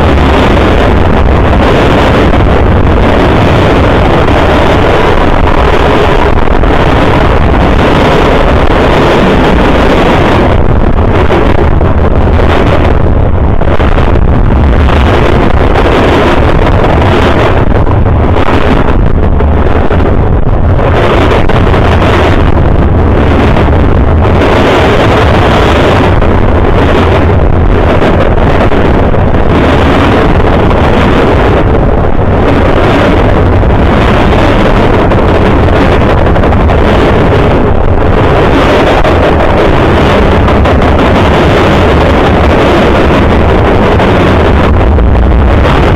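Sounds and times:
wind buffeting microphone: 0.0s - 45.9s.

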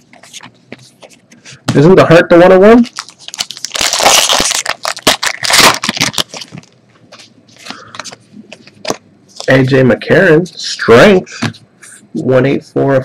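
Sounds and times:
card pack wrapper crackling: 2.8s - 6.7s
cards rustling: 2.8s - 9.6s.

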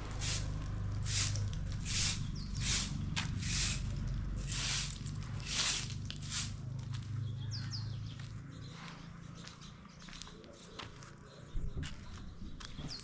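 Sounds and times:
broom sweeping brick paving: 0.0s - 7.1s.

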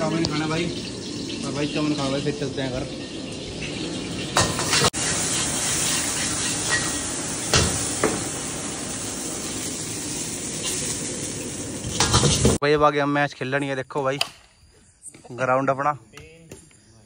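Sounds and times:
food sizzling in a wok: 0.0s - 12.6s.

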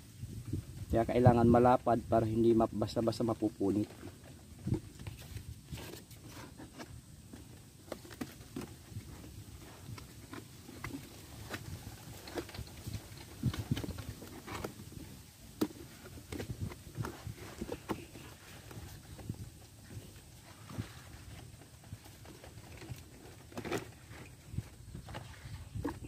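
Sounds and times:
cardboard tapping and scraping: 15.5s - 19.4s.

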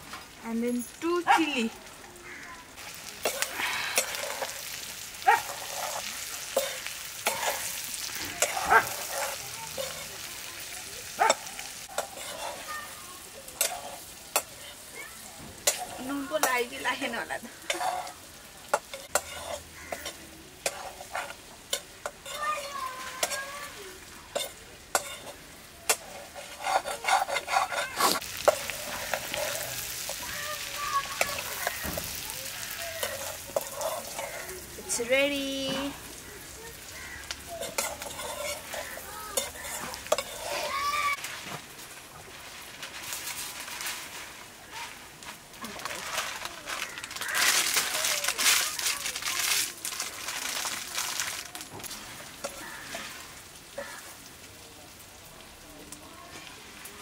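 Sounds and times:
food sizzling: 0.0s - 57.0s
ladle scraping a wok: 2.8s - 14.9s, 15.6s - 36.2s, 36.9s - 53.4s
plastic packet tearing and crinkling: 41.1s - 52.0s.

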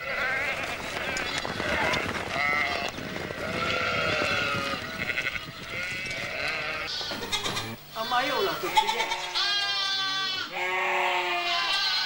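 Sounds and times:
hooves pattering on earth: 0.0s - 7.8s
goats bleating: 0.0s - 12.0s.

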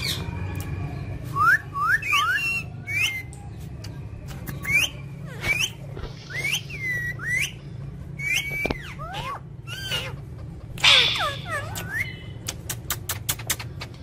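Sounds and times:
parakeets shrill calls: 0.0s - 0.5s, 4.6s - 12.4s
steady low hum: 0.0s - 14.0s.

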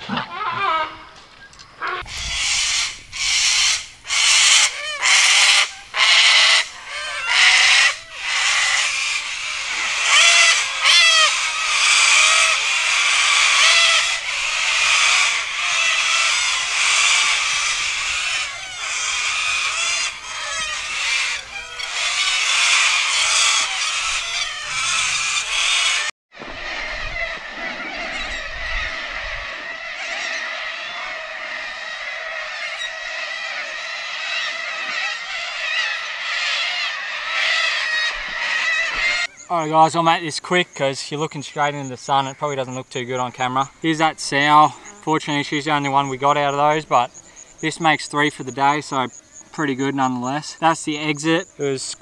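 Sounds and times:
cockatoos screeching: 1.8s - 40.1s.

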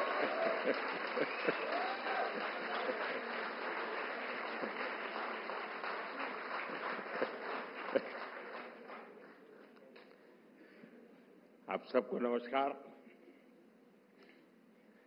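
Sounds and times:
large audience applauding: 0.0s - 9.6s.

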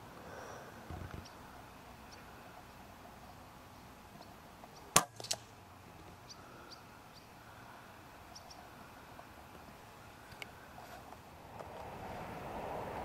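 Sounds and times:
pellet strike crack: 4.9s - 5.5s
air rifle shot crack: 5.0s - 5.5s.

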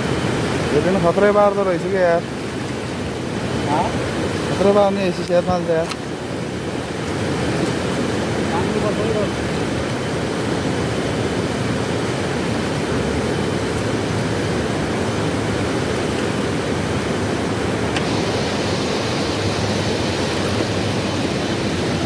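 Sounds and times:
river rushing: 0.0s - 22.0s
small click: 5.3s - 6.0s.

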